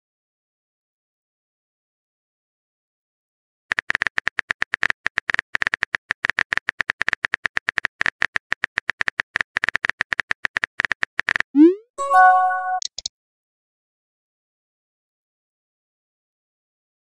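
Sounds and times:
phone keyboard clicks: 0:03.7 - 0:11.5, 0:12.8 - 0:13.1.

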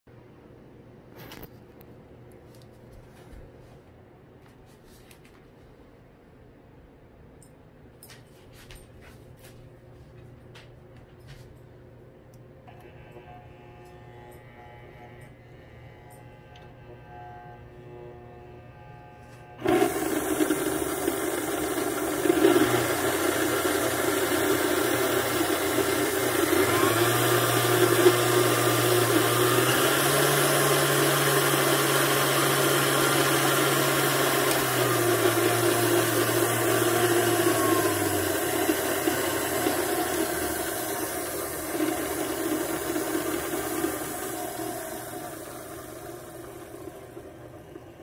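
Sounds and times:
stand mixer motor hum: 0:12.7 - 0:48.0.

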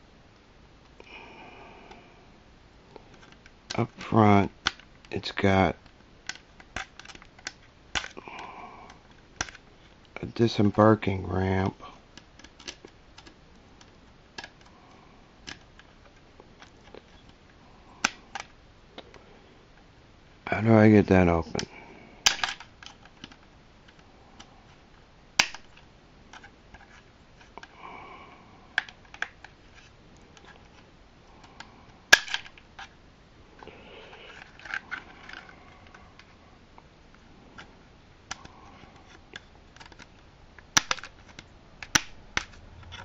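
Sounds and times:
sharp plastic snaps: 0:03.0 - 0:05.2, 0:05.8 - 0:10.2, 0:12.1 - 0:14.8, 0:15.4 - 0:17.4, 0:18.0 - 0:19.2, 0:21.5 - 0:24.5, 0:25.4 - 0:27.9, 0:28.8 - 0:29.6, 0:30.2 - 0:32.9, 0:38.3 - 0:43.0.

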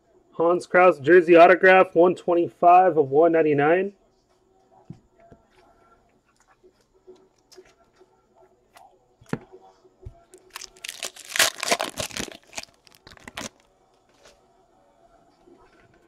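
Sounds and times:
foil wrapper crinkling: 0:10.4 - 0:13.7.

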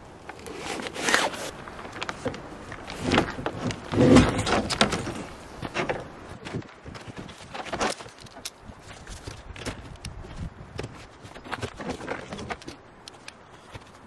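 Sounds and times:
nylon fabric rustling: 0:00.4 - 0:05.6.

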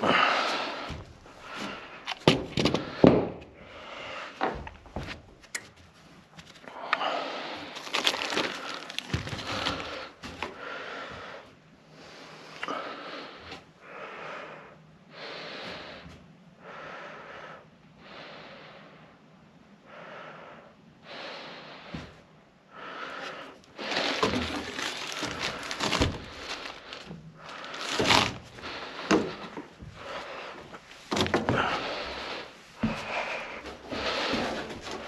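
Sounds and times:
person breathing hard: 0:00.0 - 0:05.2, 0:06.6 - 0:35.0
rustling and scraping: 0:07.7 - 0:10.6, 0:23.2 - 0:35.0.

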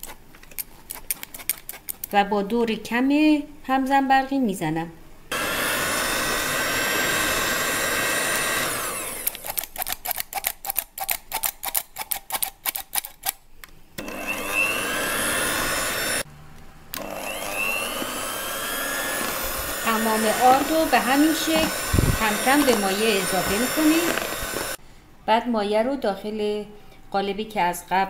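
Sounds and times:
electric hand mixer whining: 0:05.3 - 0:09.4, 0:14.0 - 0:16.3, 0:17.0 - 0:24.8.

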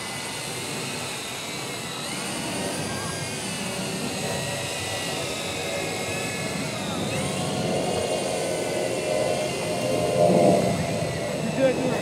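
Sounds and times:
drone propellers whining: 0:00.0 - 0:12.0.

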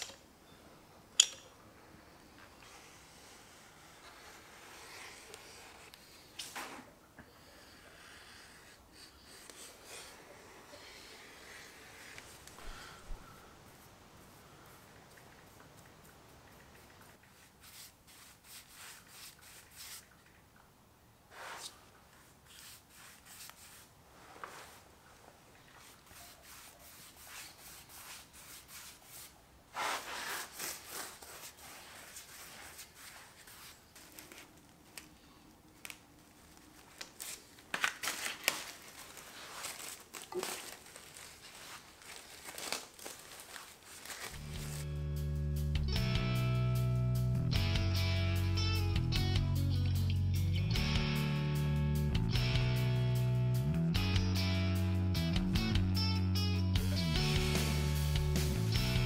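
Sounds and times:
paintbrush rubbing on wood: 0:02.6 - 0:06.3, 0:08.4 - 0:12.4, 0:13.7 - 0:20.2, 0:21.3 - 0:24.9, 0:25.7 - 0:34.4
plastic sheet crinkling: 0:29.7 - 0:44.8.

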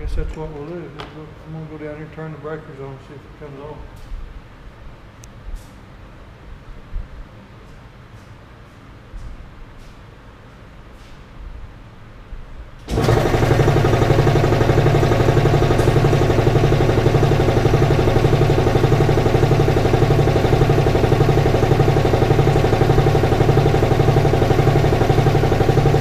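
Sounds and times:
air compressor pulsing: 0:12.9 - 0:26.0.

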